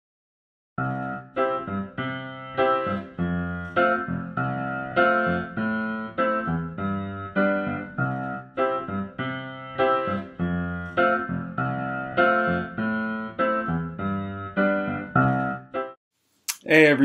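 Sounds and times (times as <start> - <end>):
keyboard playing chords: 0.8 - 16.0.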